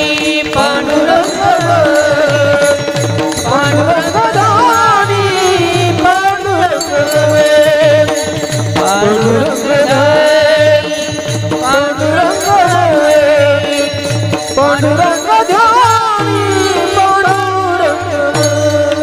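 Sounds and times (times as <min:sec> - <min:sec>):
person singing: 0:00.0 - 0:19.0
small hand cymbals ringing: 0:00.0 - 0:19.0.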